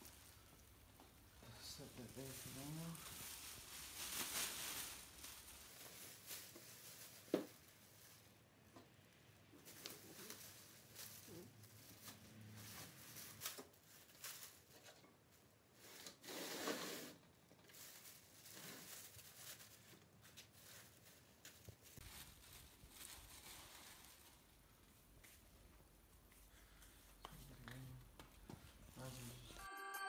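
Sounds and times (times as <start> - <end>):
plastic bag rustling: 0.0 - 8.7, 9.6 - 15.0, 17.5 - 25.6
plastic bag swish: 2.0 - 8.2.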